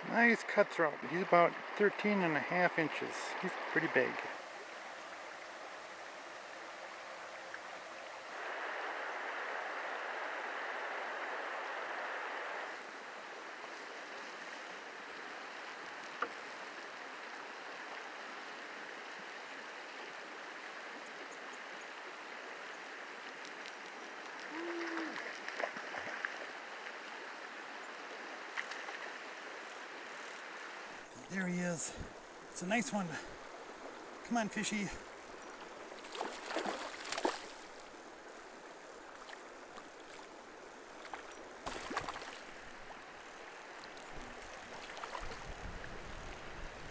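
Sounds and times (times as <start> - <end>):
river water rushing over rocks: 24.2 - 46.9.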